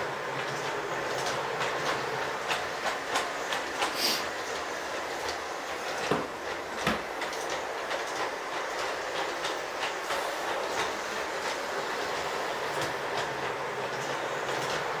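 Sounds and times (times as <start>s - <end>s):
model train rolling hum: 0.0s - 15.0s
wheels ticking over rails: 0.0s - 15.0s.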